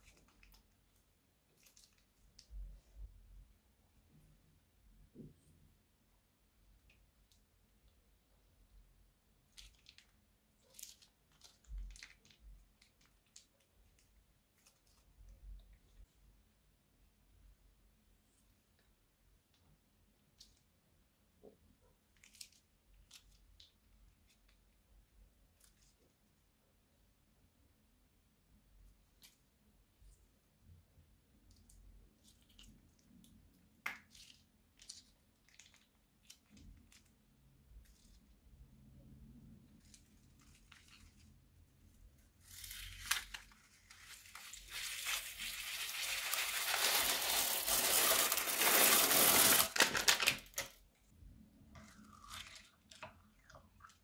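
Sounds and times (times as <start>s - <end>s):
plastic bag crinkling: 42.5s - 50.7s
slime squelching: 51.6s - 54.0s.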